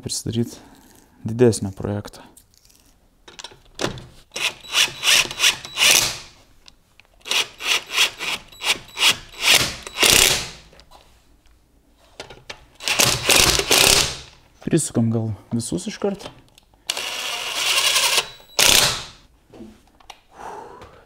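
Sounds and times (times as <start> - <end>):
impact wrench bursts: 4.3 - 6.3, 7.3 - 10.6, 12.8 - 14.3, 16.9 - 19.2.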